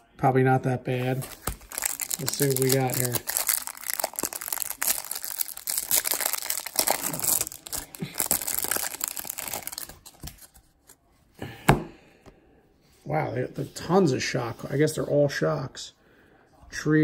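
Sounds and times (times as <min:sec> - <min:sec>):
cellophane wrapper crinkling: 0:01.2 - 0:10.6.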